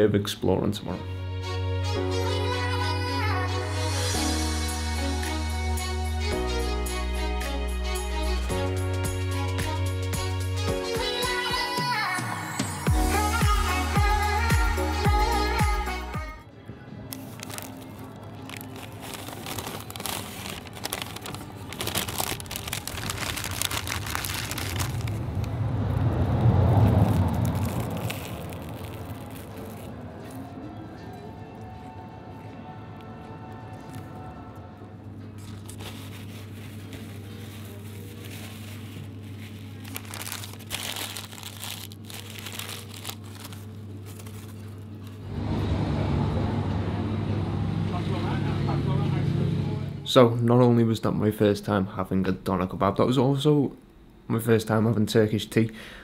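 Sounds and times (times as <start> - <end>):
paper wrapping crinkling: 17.1 - 25.5, 26.4 - 30.5, 35.4 - 45.2
passing vehicle engine rumble: 24.0 - 31.3, 45.0 - 50.1
steady low hum: 34.6 - 50.5.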